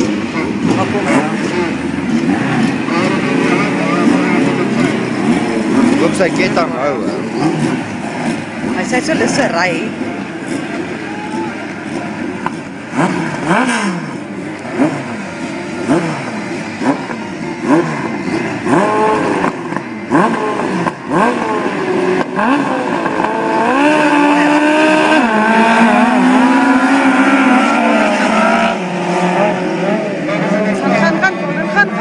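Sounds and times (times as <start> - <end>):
sidecar engines revving: 0.0 - 32.0.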